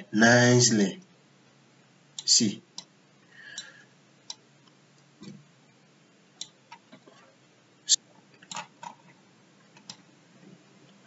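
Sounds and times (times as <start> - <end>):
computer mouse clicks: 8.4 - 9.1, 9.7 - 10.1.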